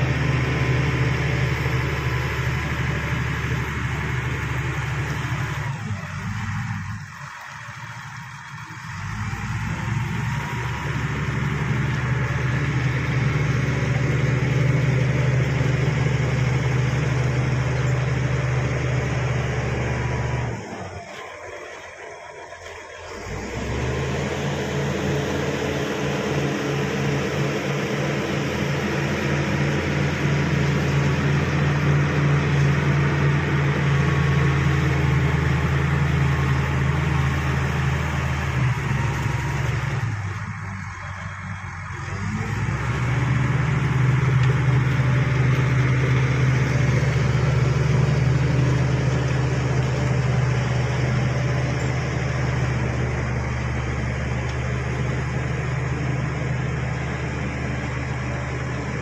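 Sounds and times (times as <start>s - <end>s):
bulldozer engine under load: 0.0s - 59.0s.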